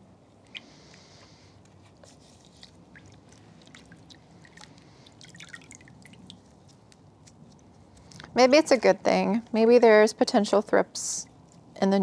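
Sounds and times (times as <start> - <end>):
water splashes and drips: 2.4 - 6.7.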